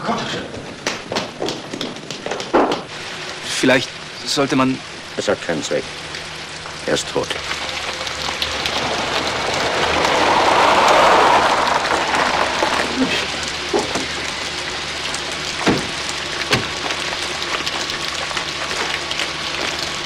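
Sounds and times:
steady hiss: 2.4s - 20.0s
car pulling up: 5.9s - 20.0s
car doors shutting: 15.6s - 16.9s.

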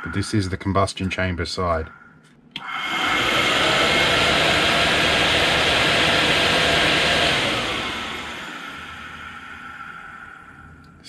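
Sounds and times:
blower motor whining: 2.6s - 11.0s.

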